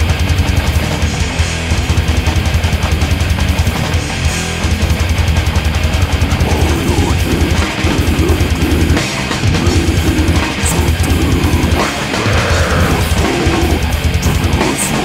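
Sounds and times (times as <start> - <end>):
heavy metal song: 0.0 - 15.0
fast bass drum beats: 4.6 - 15.0.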